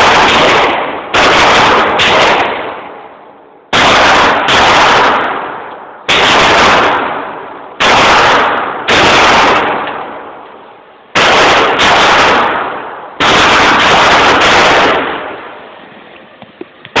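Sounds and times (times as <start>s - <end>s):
pistol shots echoing indoors: 7.8s - 10.0s.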